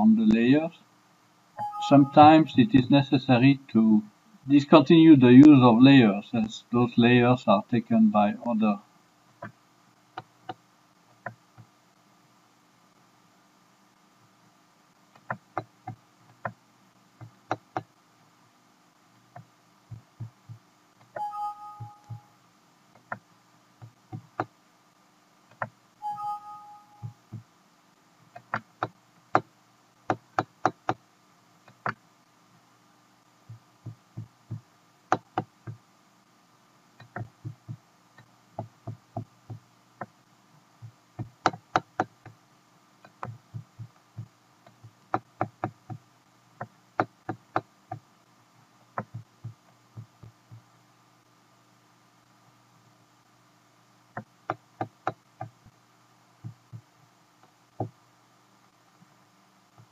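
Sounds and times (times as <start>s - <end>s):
faint steady hum: 0.0s - 59.9s
two-note alert chime: 1.6s - 2.3s, 21.2s - 22.3s, 26.0s - 27.1s
computer mouse clicks: 15.2s - 16.6s, 23.0s - 23.2s, 25.5s - 25.8s, 28.4s - 29.5s, 31.7s - 32.0s, 37.0s - 40.1s.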